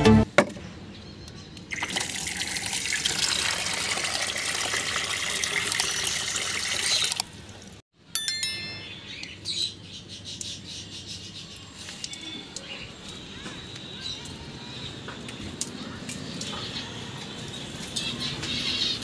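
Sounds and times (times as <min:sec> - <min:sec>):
water splashing into a tub: 0:01.7 - 0:07.4
water gushing from a tap: 0:01.7 - 0:07.8.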